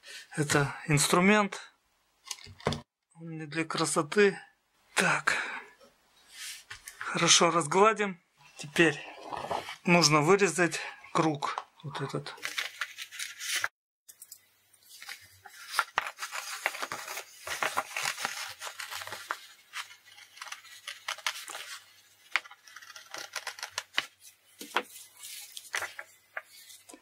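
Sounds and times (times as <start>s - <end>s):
stiff paper rustling: 12.4s - 13.7s, 14.9s - 27.0s
scissors snipping paper: 15.6s - 24.8s.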